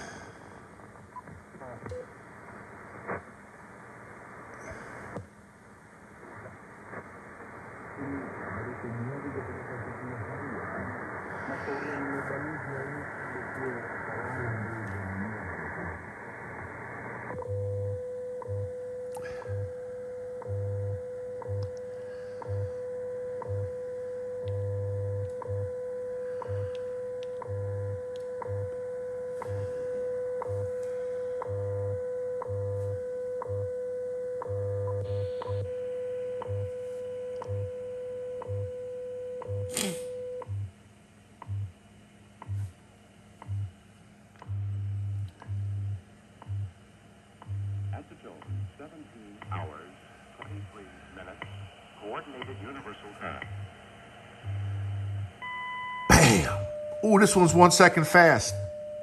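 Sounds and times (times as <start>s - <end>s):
radio hiss: 0.0s - 5.3s, 6.0s - 17.4s, 29.3s - 31.4s, 47.9s - 55.4s, 56.1s - 58.7s
steady radio tone: 6.2s - 17.4s, 48.0s - 58.9s
low time-code pulses: 17.4s - 40.7s, 43.4s - 43.7s, 44.4s - 46.8s, 47.4s - 50.7s, 54.4s - 59.0s
time signal ticks: 20.3s - 22.7s, 23.3s - 25.8s, 26.4s - 29.6s, 30.4s - 33.8s, 36.4s - 38.8s, 41.4s - 41.7s, 43.4s - 43.7s, 44.4s - 44.6s, 46.4s - 46.7s, 47.4s - 47.7s, 48.4s - 48.7s.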